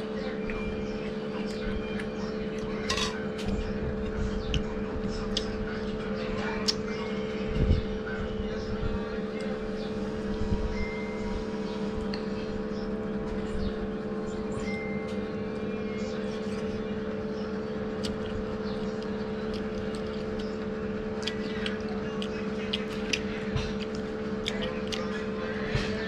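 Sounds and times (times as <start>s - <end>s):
steady motor hum: 0.0s - 26.0s
person chewing: 17.9s - 26.0s.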